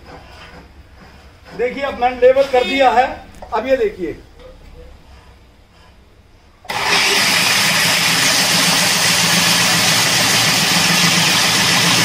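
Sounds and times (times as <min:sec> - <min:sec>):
floor grinding machine running: 0:06.7 - 0:12.0.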